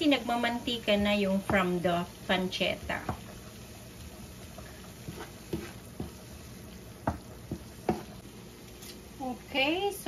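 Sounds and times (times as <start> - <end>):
food sizzling in pan: 0.0 - 10.0
wooden spoon knocking on pan: 1.0 - 1.9, 2.8 - 3.3, 5.0 - 8.2.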